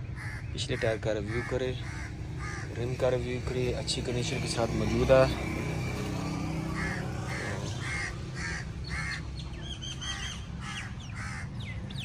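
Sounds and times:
bird calling: 0.0 - 12.0
high bird chirps: 6.6 - 12.0.

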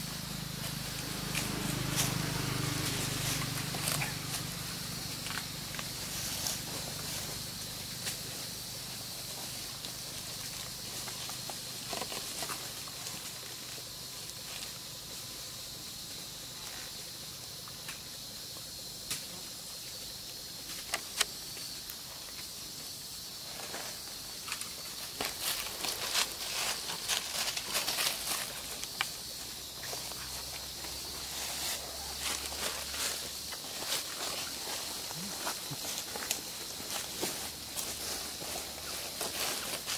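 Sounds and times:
dry leaves crackling: 0.0 - 14.8, 25.0 - 39.9
insect chorus hiss: 0.0 - 39.9.

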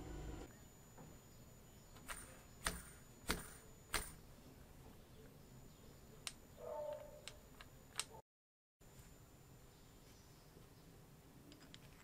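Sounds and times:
small plastic parts clicking: 6.2 - 8.2, 11.5 - 12.0.

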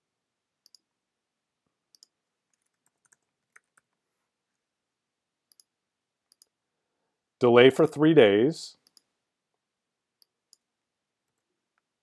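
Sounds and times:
faint computer mouse clicks: 1.9 - 4.0, 5.5 - 5.7, 6.3 - 6.6.

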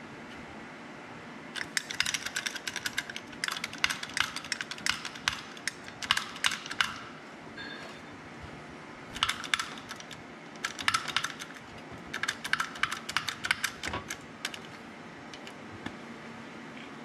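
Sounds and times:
sharp metallic clicks: 1.6 - 7.1, 9.2 - 15.6.

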